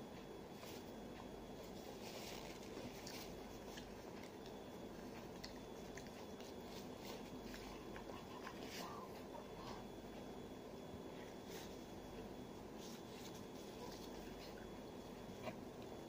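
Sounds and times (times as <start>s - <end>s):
low room hum: 0.0s - 16.0s
chewing and mouth noises: 0.6s - 10.2s.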